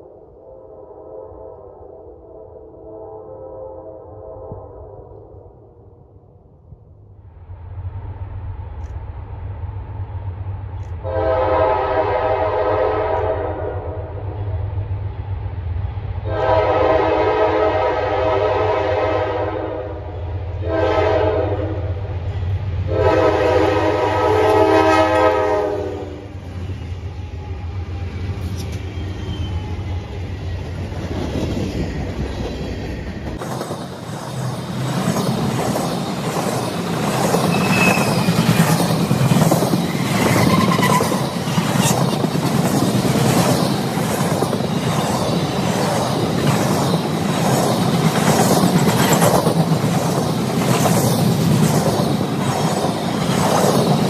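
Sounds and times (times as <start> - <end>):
diesel locomotive horn: 0.3 - 5.2, 11.0 - 14.4, 16.2 - 22.0, 22.8 - 26.5
wheels clacking over rail joints: 30.7 - 54.0
faint wheel squeals: 37.4 - 38.5.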